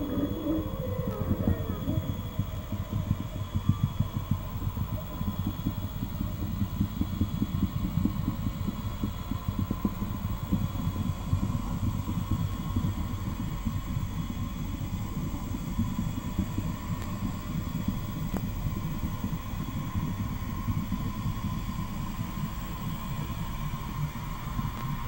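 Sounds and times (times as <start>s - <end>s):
buffeting low rumble: 0.0s - 4.4s
faint steady high tone: 0.0s - 4.8s.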